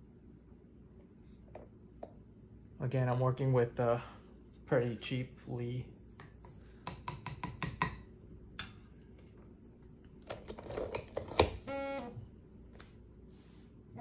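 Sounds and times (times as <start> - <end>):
short buzzing tone: 11.6 - 12.2.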